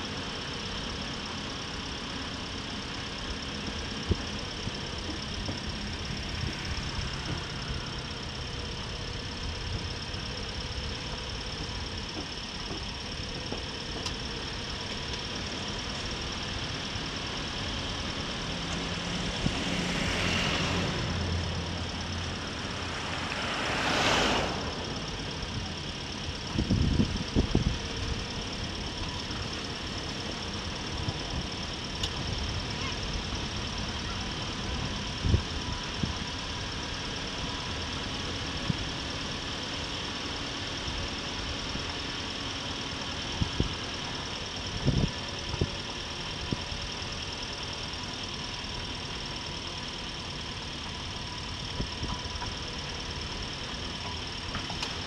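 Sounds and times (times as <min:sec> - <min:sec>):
motorcycle engine running: 0:00.0 - 0:55.0
road and wind noise: 0:00.0 - 0:55.0
vehicles swishing past: 0:18.1 - 0:26.8.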